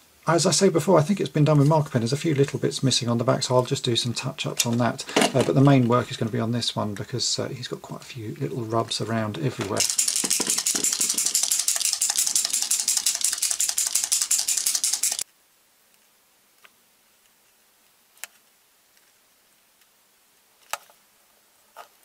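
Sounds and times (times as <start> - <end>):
paint marker ball rattling: 9.7 - 15.2.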